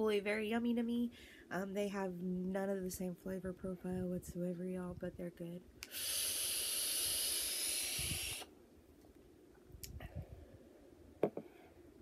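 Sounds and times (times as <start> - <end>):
breathy exhale: 5.8 - 8.5
vape hissing: 5.8 - 8.5.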